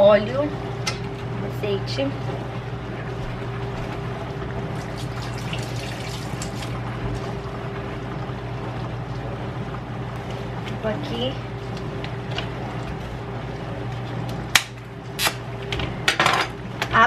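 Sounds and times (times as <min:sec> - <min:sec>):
steady low hum: 0:00.0 - 0:17.0
water splashing: 0:04.7 - 0:07.6.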